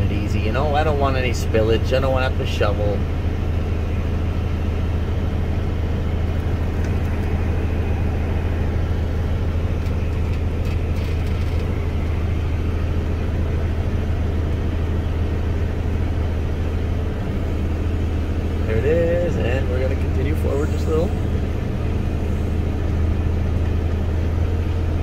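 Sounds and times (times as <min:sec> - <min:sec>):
tractor engine drone: 0:00.0 - 0:25.0.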